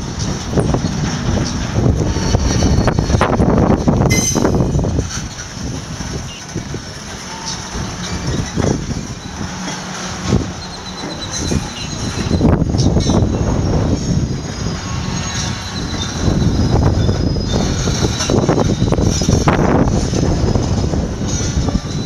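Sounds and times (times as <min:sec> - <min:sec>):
clanks and knocks: 0:00.0 - 0:13.5
freight cars rolling on rails: 0:00.0 - 0:22.0.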